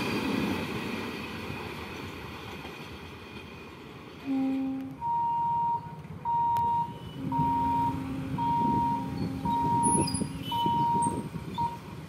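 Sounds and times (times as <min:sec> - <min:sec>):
electronic warning beeps: 0:05.0 - 0:11.8.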